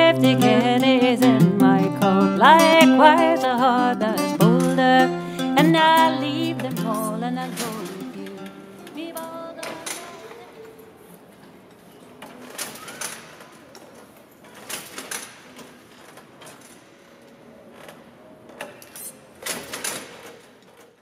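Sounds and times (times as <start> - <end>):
faint steady background noise: 0.0 - 21.0
mechanical clicks and knocks: 2.4 - 10.4.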